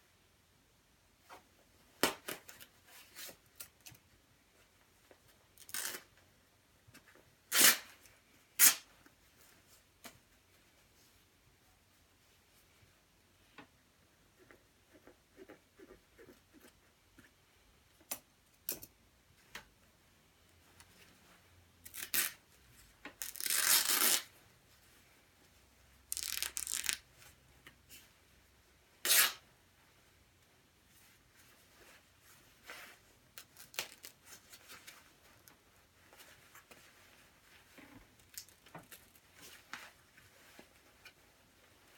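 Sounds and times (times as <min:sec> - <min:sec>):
fabric ripping: 0:05.6 - 0:06.1, 0:07.5 - 0:07.9, 0:21.9 - 0:22.4, 0:23.2 - 0:24.3, 0:26.1 - 0:27.0, 0:29.0 - 0:29.4.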